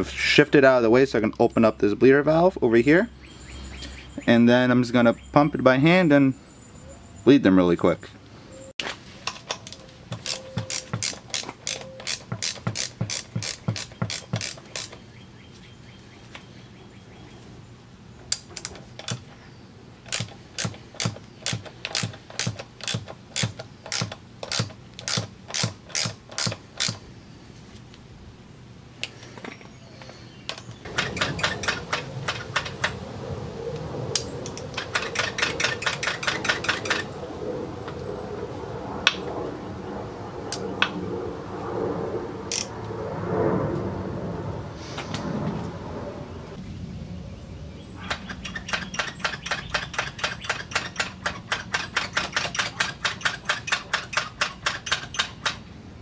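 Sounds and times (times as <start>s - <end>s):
ratchet wrench clicking: 9.3s - 15.0s, 20.1s - 27.0s, 30.9s - 33.0s, 34.5s - 37.0s, 48.1s - 55.6s.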